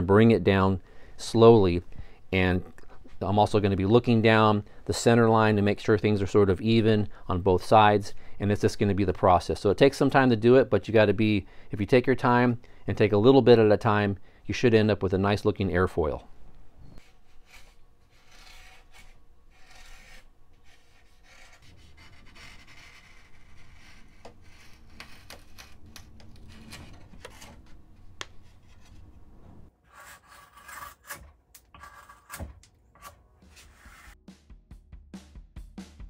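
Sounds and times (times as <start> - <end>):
knife shaving wood: 17.0 - 29.1.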